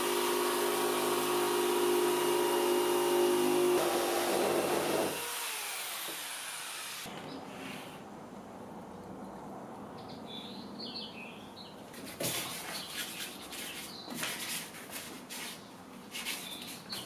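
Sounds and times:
jigsaw cutting board: 0.0 - 7.1.

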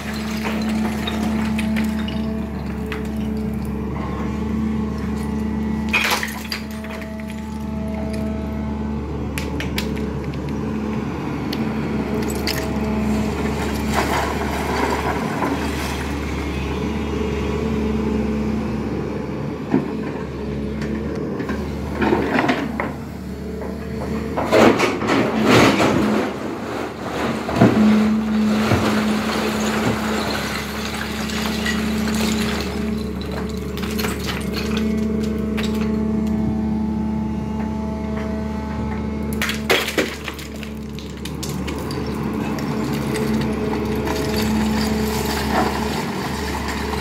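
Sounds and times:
rocks clattering in bucket: 0.0 - 3.7, 26.9 - 36.0, 39.4 - 47.0
excavator engine and hydraulics: 0.0 - 47.0.

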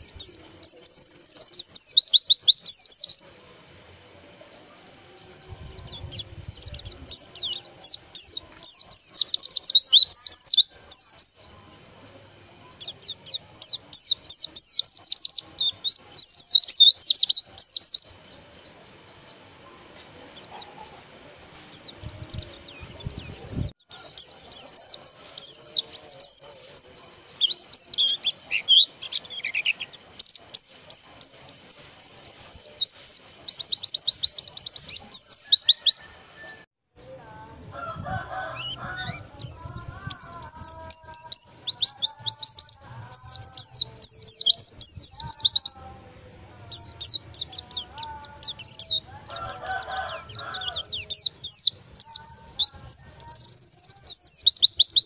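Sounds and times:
bird chattering song: 0.0 - 36.1, 37.0 - 55.0.

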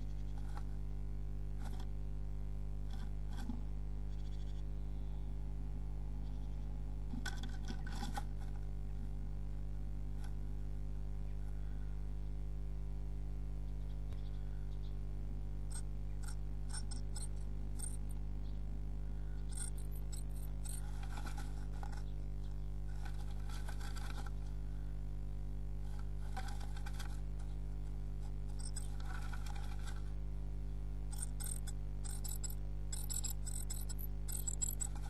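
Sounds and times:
steady electrical hum: 0.0 - 35.0
bird scratching nest material: 19.5 - 24.6, 25.8 - 30.2, 31.1 - 35.0.

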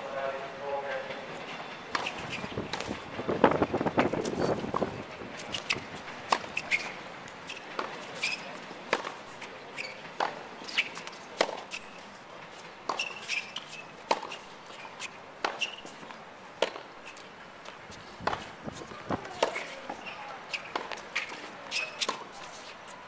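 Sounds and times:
tennis ball hit by racket: 3.6 - 9.2, 10.2 - 11.9, 12.9 - 14.5, 15.4 - 16.9, 18.2 - 22.3
tennis ball bouncing on court: 3.8 - 9.2, 9.9 - 11.8, 12.9 - 14.4, 15.4 - 16.9, 18.2 - 22.4.

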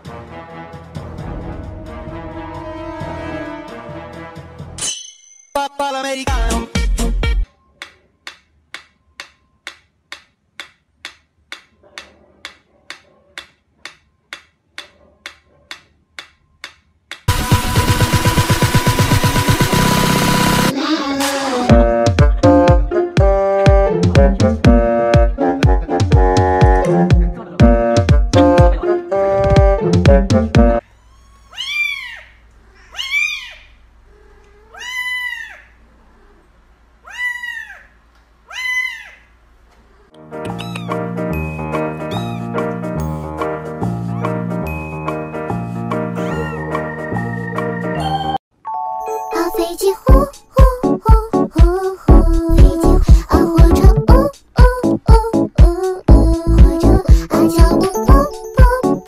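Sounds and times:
metronome ticking: 7.8 - 11.7
kitten mewing: 31.0 - 36.4, 40.0 - 41.0, 42.1 - 42.6.

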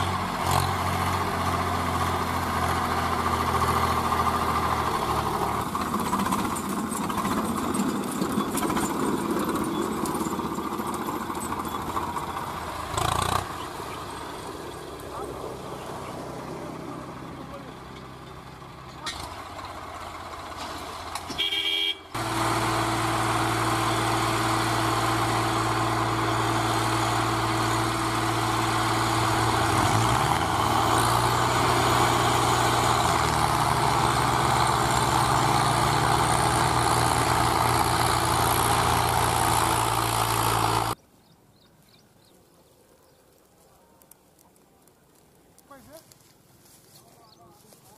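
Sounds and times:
tractor engines running: 0.0 - 41.0
horn toot: 21.3 - 22.2.

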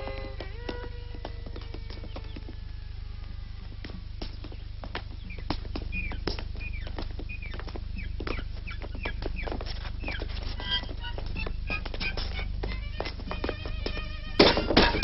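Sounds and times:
violin: 0.0 - 4.6, 9.6 - 15.0
footsteps on stone: 0.0 - 15.0
low hum: 0.0 - 15.0
hens clucking: 3.6 - 15.0.

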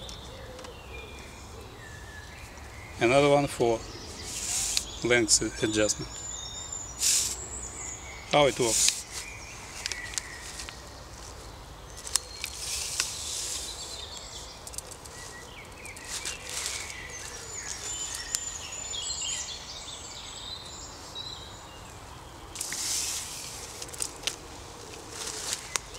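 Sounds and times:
birds singing: 0.0 - 25.9.

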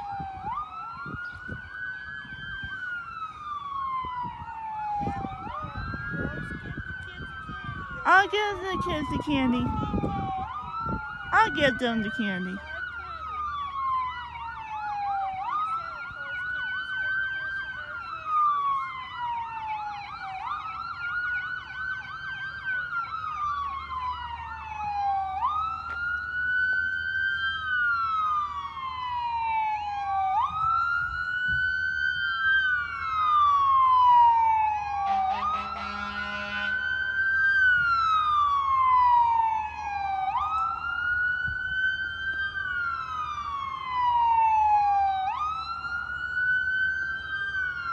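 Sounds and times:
fast-sweeping siren: 0.0 - 47.9
fire truck siren wailing: 0.0 - 47.9
vehicle horn: 35.1 - 36.8.

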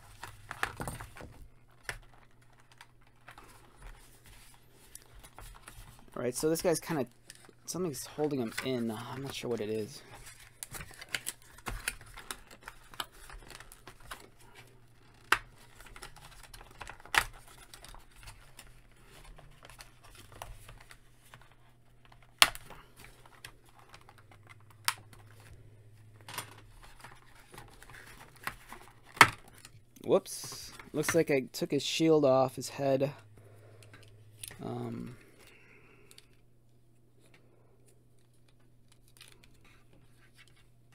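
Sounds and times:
packaging rustling: 0.0 - 31.2.

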